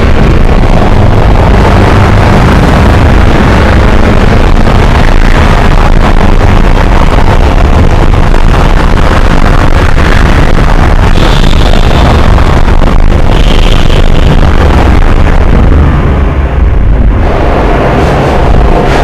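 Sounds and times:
loud steady rumbling noise: 0.0s - 19.0s.

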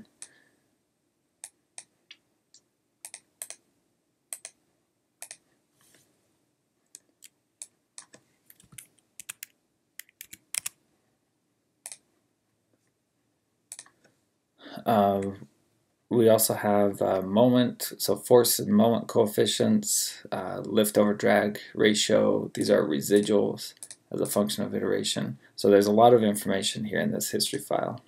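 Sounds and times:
mouse clicks: 1.4s - 3.6s, 4.3s - 4.6s, 5.2s - 5.4s, 6.9s - 10.8s, 11.8s - 12.0s, 13.7s - 14.1s
keyboard typing: 4.3s - 4.6s, 5.2s - 5.4s, 7.0s - 10.8s.

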